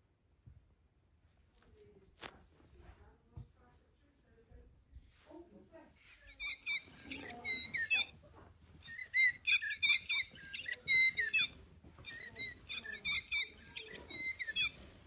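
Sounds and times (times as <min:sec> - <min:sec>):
toy bird chirps and squeaks: 0:06.2 - 0:08.1, 0:08.8 - 0:15.0.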